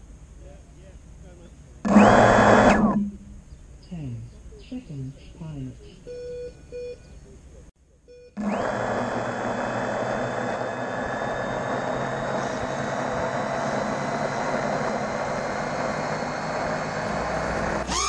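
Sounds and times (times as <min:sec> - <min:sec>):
drone motors whirring: 0:01.8 - 0:03.4, 0:08.4 - 0:18.0
high motor whines: 0:01.8 - 0:03.5, 0:08.4 - 0:18.0.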